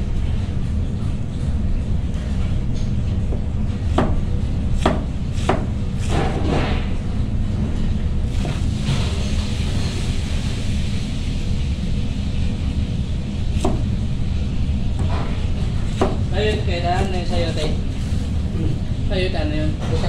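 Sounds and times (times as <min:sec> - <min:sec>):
steady low rumble: 0:00.0 - 0:19.9.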